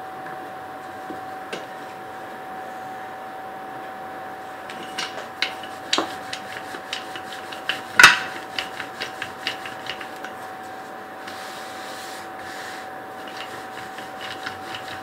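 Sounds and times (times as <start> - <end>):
rolling pin clicks and knocks: 4.7 - 10.4
rolling pin rubbing on dough: 4.7 - 15.0.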